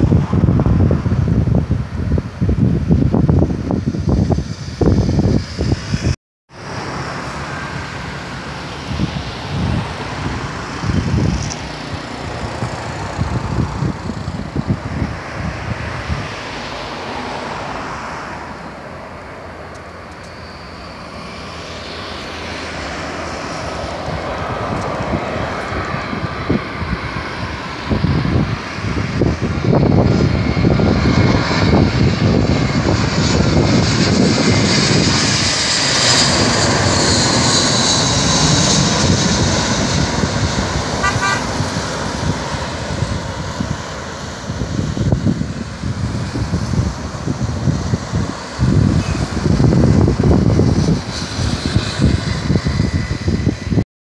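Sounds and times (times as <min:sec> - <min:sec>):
high engine whine: 0:00.0 - 0:53.8
jet airliner passing overhead: 0:00.0 - 0:53.8
wind gusts on microphone: 0:00.0 - 0:53.8.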